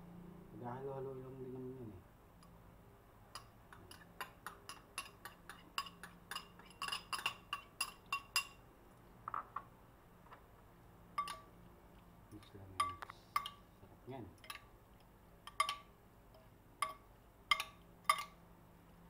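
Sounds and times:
spoon clinking on ceramic bowl: 0:03.3 - 0:08.6, 0:11.1 - 0:11.5, 0:12.4 - 0:13.6, 0:14.4 - 0:14.7, 0:15.4 - 0:18.4.

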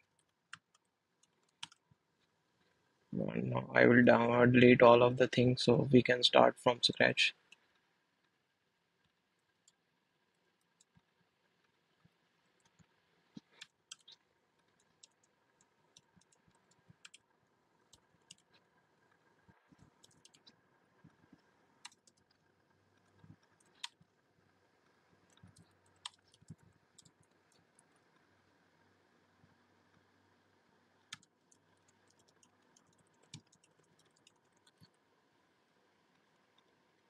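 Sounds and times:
computer keys clicking: 0:00.0 - 0:01.8, 0:13.6 - 0:14.2, 0:14.8 - 0:15.3, 0:15.9 - 0:17.2, 0:17.9 - 0:18.6, 0:19.8 - 0:20.6, 0:21.8 - 0:22.4, 0:23.1 - 0:24.0, 0:25.3 - 0:27.6, 0:31.1 - 0:35.0.

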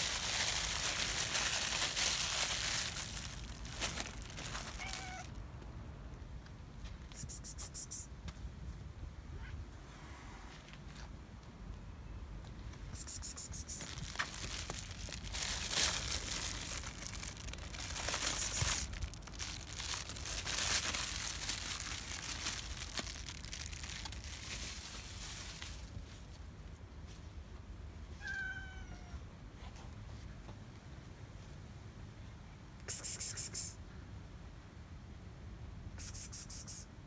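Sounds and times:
plastic bag crinkling: 0:00.0 - 0:05.4, 0:13.8 - 0:26.0
cat meowing: 0:04.6 - 0:05.4, 0:28.2 - 0:29.3.

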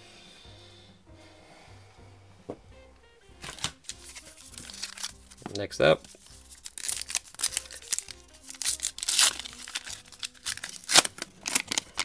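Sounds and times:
faint background music: 0:00.0 - 0:12.0
cards sliding out: 0:03.4 - 0:12.0
foil wrapper crinkling: 0:03.4 - 0:12.0.

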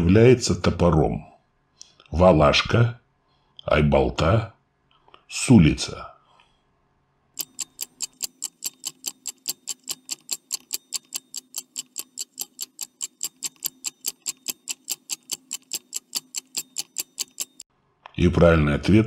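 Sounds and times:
stopwatch ticking: 0:07.4 - 0:17.6.

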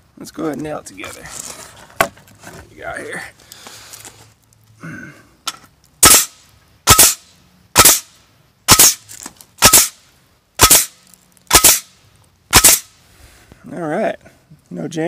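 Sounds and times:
nail gun shots into wood: 0:06.0 - 0:07.2, 0:07.8 - 0:08.1, 0:08.7 - 0:09.0, 0:09.6 - 0:10.0, 0:10.6 - 0:11.9, 0:12.5 - 0:12.9.

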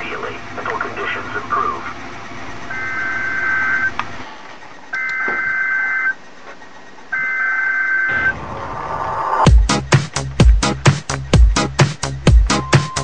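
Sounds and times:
electronic data tone bursts: 0:02.6 - 0:04.0, 0:04.9 - 0:06.2, 0:07.1 - 0:08.5, 0:12.5 - 0:13.0.

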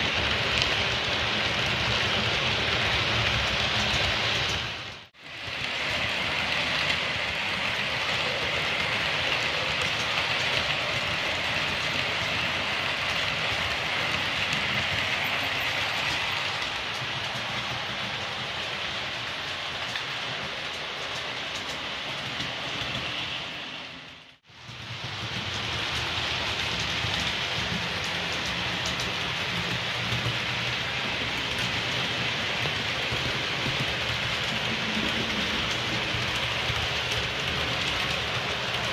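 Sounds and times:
model train running on rails: 0:00.0 - 0:38.9.

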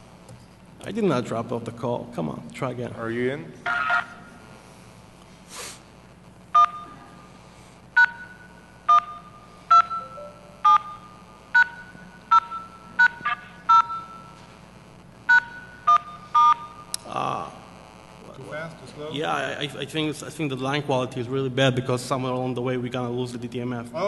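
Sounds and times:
telephone keypad tones: 0:06.6 - 0:06.9, 0:08.0 - 0:14.3, 0:15.3 - 0:16.8.

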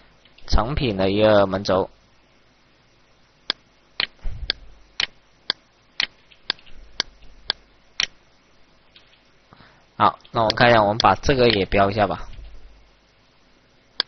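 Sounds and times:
steady sharp ticking: 0:03.4 - 0:08.3, 0:10.0 - 0:12.1.

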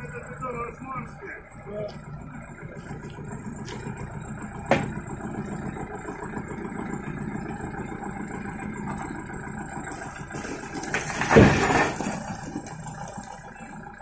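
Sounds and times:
small diesel tractor engine running: 0:00.0 - 0:14.0
loud burst of clatter: 0:09.9 - 0:13.6.

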